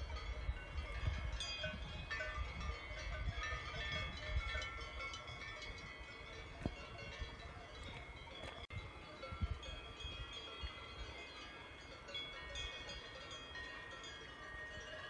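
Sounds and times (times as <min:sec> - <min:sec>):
small bells tinkling: 0:00.0 - 0:15.0.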